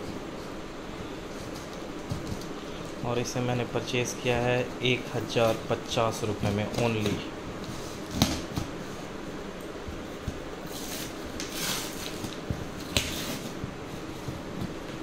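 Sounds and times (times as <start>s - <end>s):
scissors slitting packing tape: 10.9s - 13.5s.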